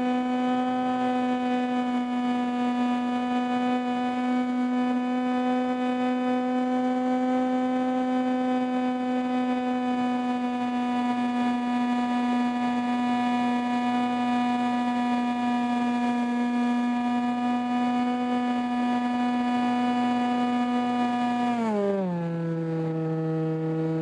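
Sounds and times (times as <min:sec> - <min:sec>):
model airplane motor humming: 0:00.0 - 0:24.0.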